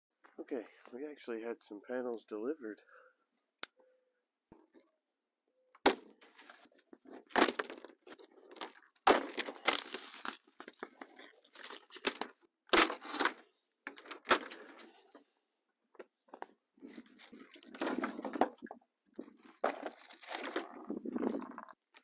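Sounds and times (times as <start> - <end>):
plastic wrap tearing: 7.2 - 13.4, 19.7 - 20.8.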